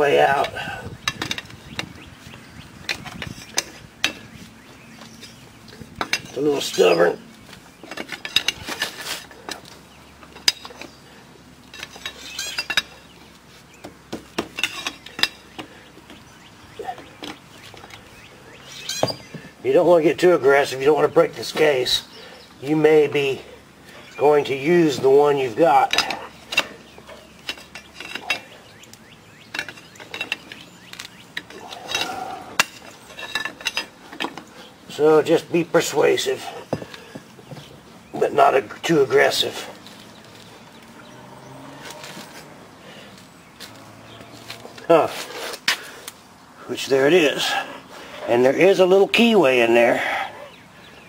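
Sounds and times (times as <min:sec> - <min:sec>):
metal engine cover clicking and scraping: 0:00.1 - 0:02.0, 0:02.8 - 0:04.3, 0:07.8 - 0:11.0, 0:11.6 - 0:13.1, 0:25.7 - 0:28.7, 0:29.4 - 0:34.5.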